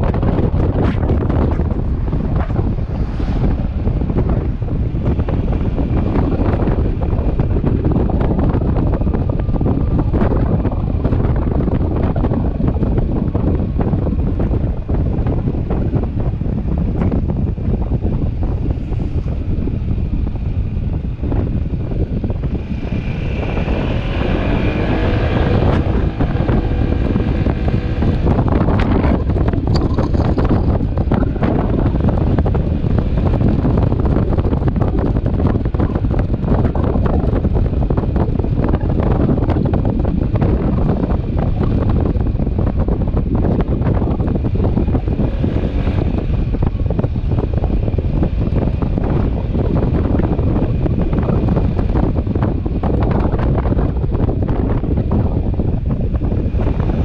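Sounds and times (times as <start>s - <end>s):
motorcycle engine: 0.0s - 57.0s
road noise: 0.0s - 57.0s
wind buffeting microphone: 0.0s - 57.0s.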